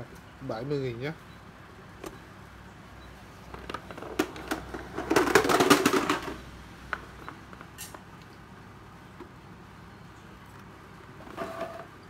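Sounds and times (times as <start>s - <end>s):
plastic chargers clattering on tile: 3.5s - 6.4s
plastic rattling: 3.5s - 6.4s.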